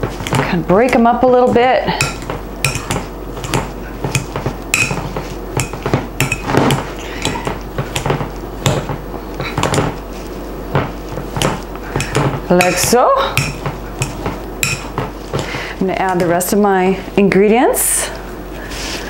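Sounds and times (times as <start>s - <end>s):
potato masher knocking on glass bowl: 0.0s - 9.0s, 10.7s - 15.1s.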